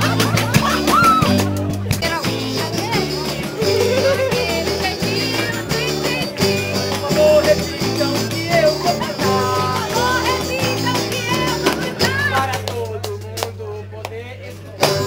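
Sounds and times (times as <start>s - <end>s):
drum kit: 0.0s - 13.6s, 14.8s - 15.0s
acoustic guitars: 0.0s - 15.0s
electric bass guitar: 0.0s - 15.0s
man singing: 1.9s - 15.0s
tambourine: 2.1s - 11.6s.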